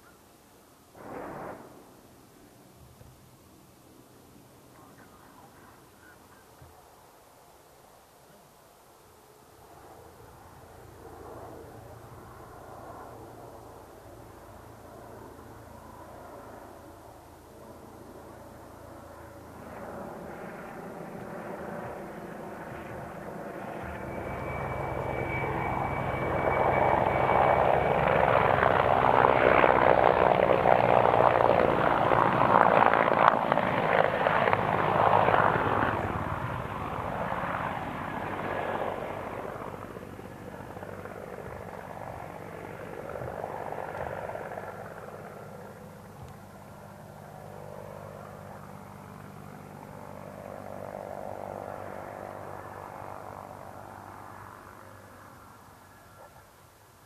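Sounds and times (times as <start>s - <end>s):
helicopter flying past: 9.0s - 56.5s
thin high whine: 22.6s - 29.7s.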